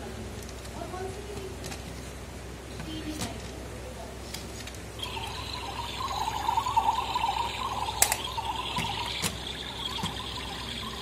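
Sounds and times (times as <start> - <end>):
toy boiling water sound effect: 5.0 - 11.0.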